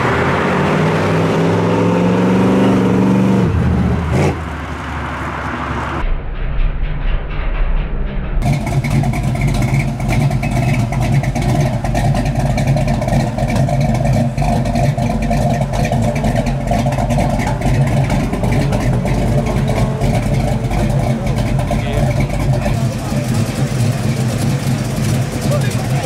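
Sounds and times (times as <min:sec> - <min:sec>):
pickup truck engine idling: 0:08.4 - 0:26.0.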